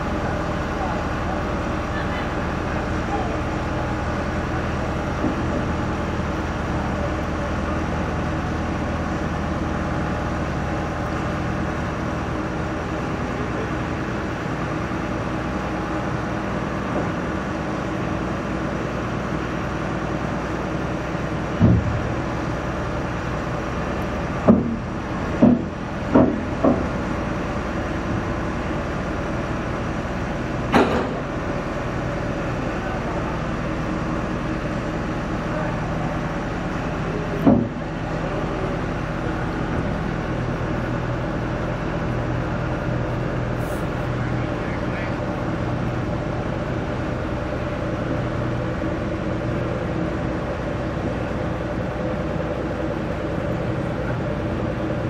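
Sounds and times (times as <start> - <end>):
diesel truck engine idling: 0.0 - 55.0
sharp knocks on trailer: 21.5 - 22.2, 24.4 - 27.0, 30.7 - 31.3, 37.4 - 37.8.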